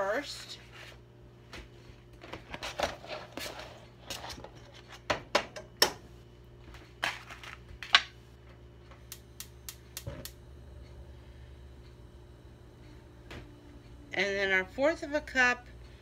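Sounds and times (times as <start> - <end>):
gas stove igniter clicking: 9.1 - 10.4.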